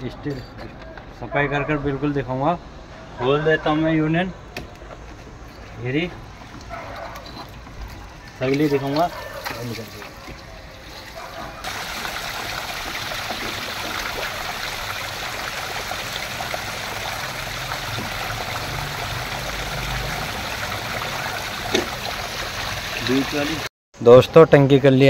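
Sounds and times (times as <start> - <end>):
water gushing from pipes: 5.9 - 23.7
water splashing on ground: 7.5 - 23.7.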